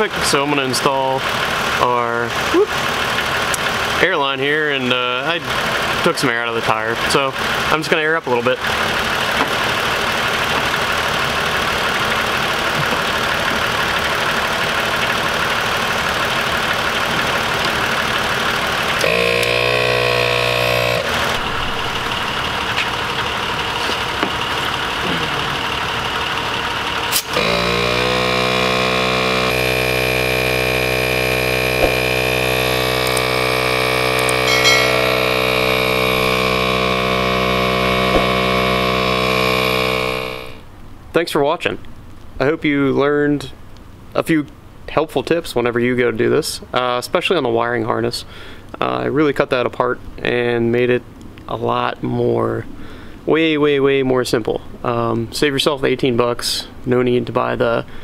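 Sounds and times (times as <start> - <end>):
air compressor humming: 8.6 - 40.7.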